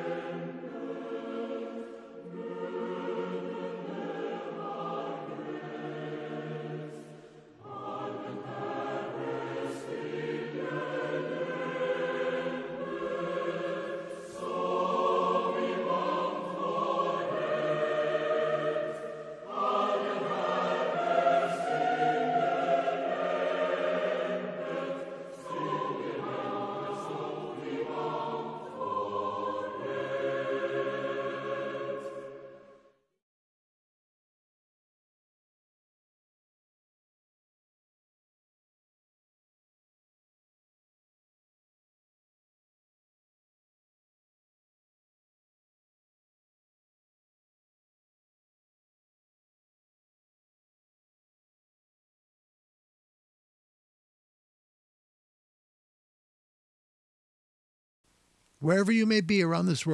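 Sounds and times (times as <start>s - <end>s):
choir singing sustained chords: 0.0s - 32.9s.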